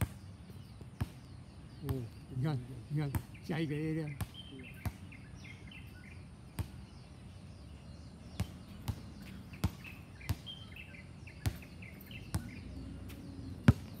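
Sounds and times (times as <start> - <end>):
birds chirping: 0.0 - 14.0
basketballs bouncing on court: 2.9 - 5.1, 8.3 - 10.6, 11.4 - 12.6, 13.2 - 14.0.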